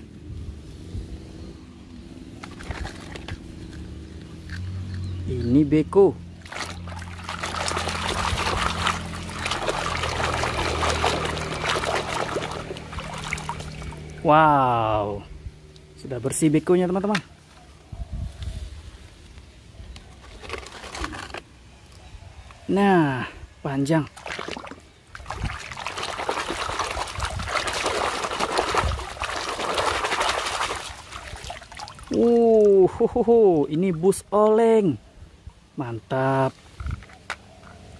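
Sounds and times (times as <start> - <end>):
water splashing in plastic basin: 2.4 - 3.4, 6.4 - 14.3, 20.2 - 21.3, 24.1 - 32.8.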